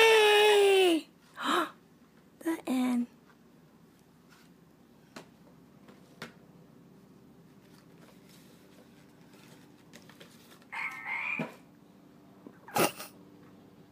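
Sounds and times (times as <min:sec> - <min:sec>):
recorded frog croak: 0:10.7 - 0:11.7.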